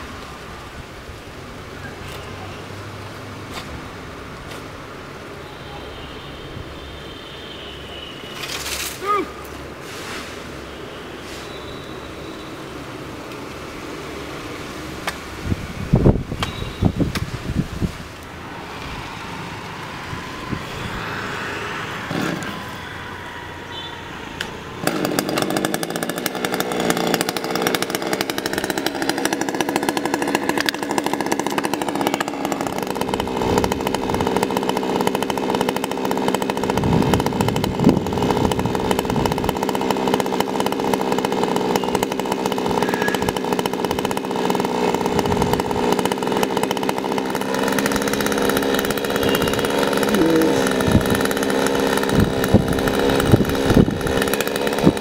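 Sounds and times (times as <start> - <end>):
chainsaw engine running: 18.6 - 22.8, 24.8 - 55.0.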